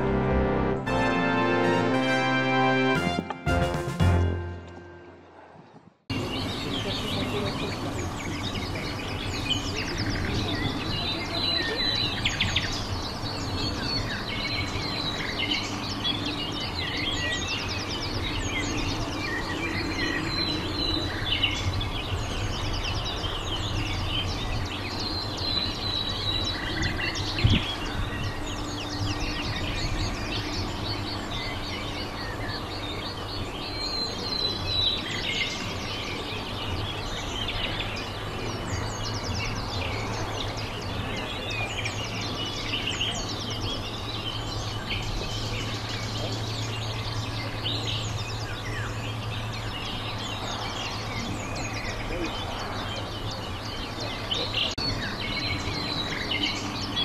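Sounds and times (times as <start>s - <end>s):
steady low hum: 0.0s - 1.8s
small birds chirping: 6.1s - 57.0s.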